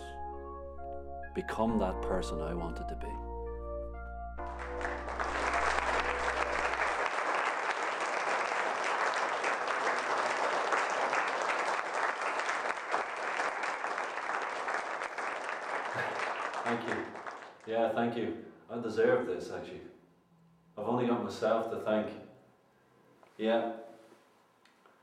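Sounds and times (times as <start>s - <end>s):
low music tone: 0.0s - 7.1s
crowd applauding: 4.4s - 17.7s.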